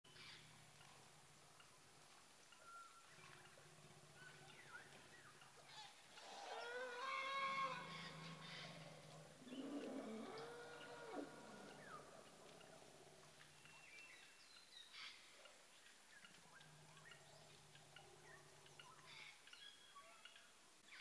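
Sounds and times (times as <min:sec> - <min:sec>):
faint low hum: 0:00.1 - 0:20.5
elephants calling: 0:02.6 - 0:13.5.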